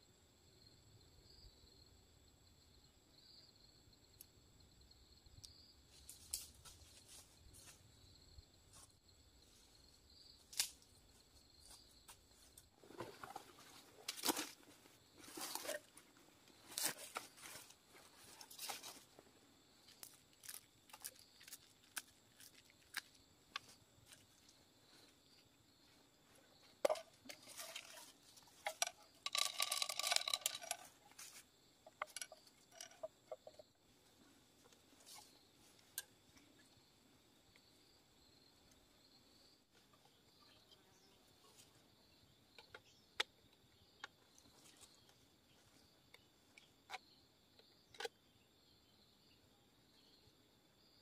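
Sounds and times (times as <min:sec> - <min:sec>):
scraping rattle: 0:26.9 - 0:31.0.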